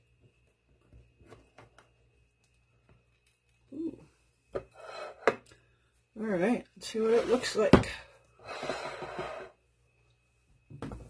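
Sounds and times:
spatula scraping glass dish: 0:04.7 - 0:05.3, 0:08.5 - 0:09.6.

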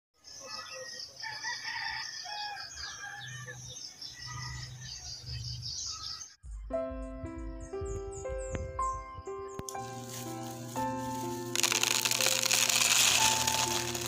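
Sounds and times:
small birds chirping: 0:00.2 - 0:06.5, 0:07.3 - 0:11.3
rooster crowing: 0:00.4 - 0:04.9
music notes: 0:07.0 - 0:14.0.

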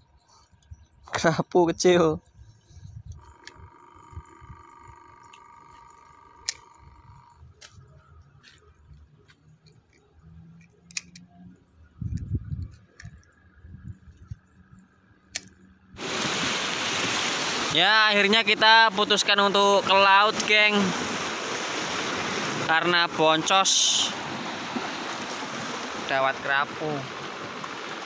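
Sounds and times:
faint steady hum: 0:02.3 - 0:09.9
fishing reel handling noise: 0:03.0 - 0:07.8
sharp clicks: 0:05.2 - 0:07.8, 0:09.6 - 0:11.3.

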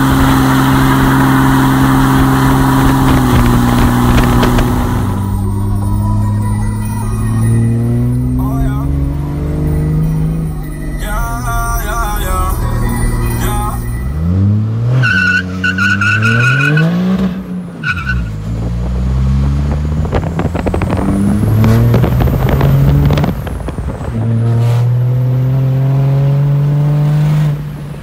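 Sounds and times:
diesel engine accelerating: 0:00.0 - 0:28.0
high steady squeal: 0:00.5 - 0:16.9.

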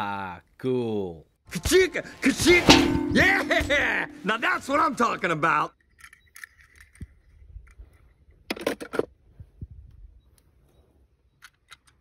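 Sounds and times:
soft low knocks: 0:01.7 - 0:04.7.

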